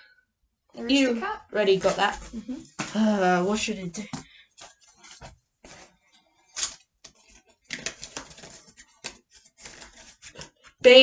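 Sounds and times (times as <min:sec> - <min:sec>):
wrapper crinkling and tearing: 0:06.5 - 0:10.8.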